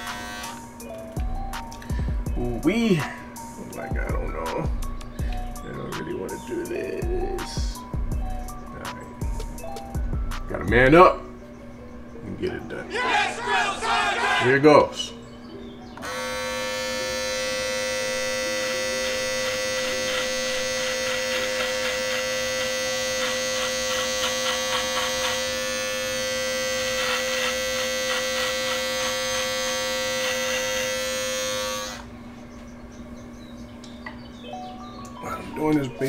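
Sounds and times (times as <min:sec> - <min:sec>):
electric hair clippers buzzing: 0:00.0 - 0:11.2, 0:16.0 - 0:32.2
clipper blades rasping through hair: 0:16.0 - 0:32.1.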